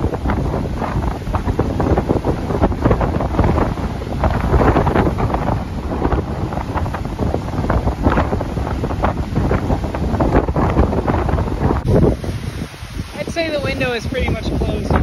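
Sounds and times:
heavy surf: 0.0s - 15.0s
wind buffeting microphone: 0.0s - 15.0s.

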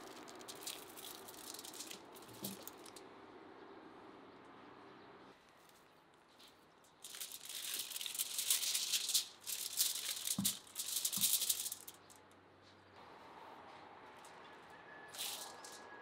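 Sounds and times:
aluminium foil crinkling: 0.0s - 3.0s, 6.4s - 12.2s, 15.1s - 15.8s.

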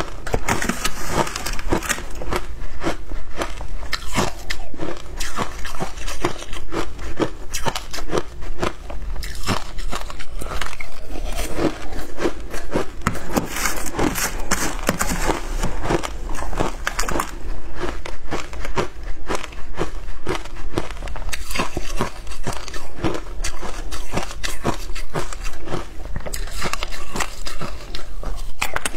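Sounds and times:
crunching shaved ice: 0.0s - 28.9s
metal spoon scraping ice: 0.3s - 2.4s, 13.0s - 17.3s.

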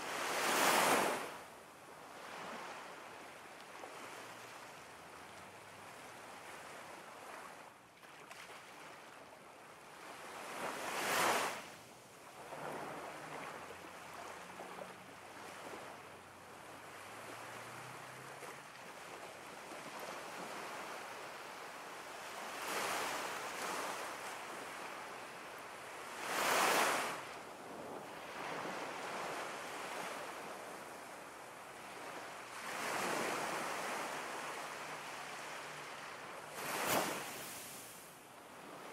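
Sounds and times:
ocean waves breaking: 31.9s - 38.0s.

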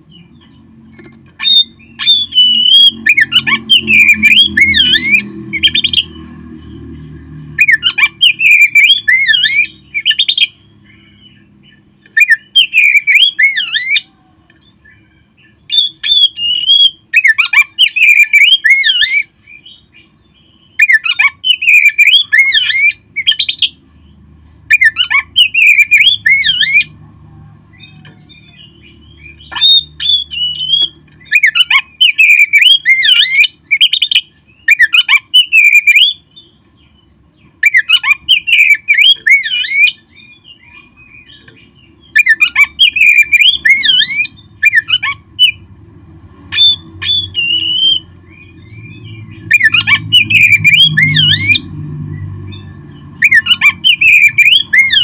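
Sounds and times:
bird singing whistled phrases: 1.4s - 6.1s, 7.6s - 10.6s, 12.1s - 14.1s, 14.8s - 19.8s, 20.7s - 23.8s, 24.7s - 26.9s, 27.8s - 36.4s, 37.6s - 45.6s, 46.4s - 51.7s, 53.2s - 55.0s.

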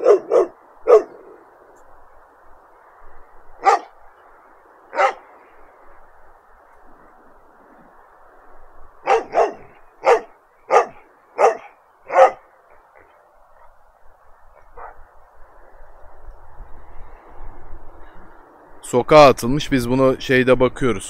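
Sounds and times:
dog barking: 0.0s - 1.2s, 3.6s - 4.0s, 4.9s - 5.3s, 9.0s - 13.1s, 14.6s - 15.0s.

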